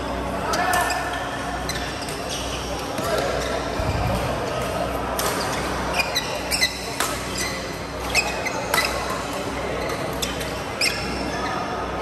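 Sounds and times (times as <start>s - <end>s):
shoes squeaking on floor: 5.4s - 9.0s, 9.8s - 11.6s
rackets hitting shuttlecock: 6.9s - 7.6s.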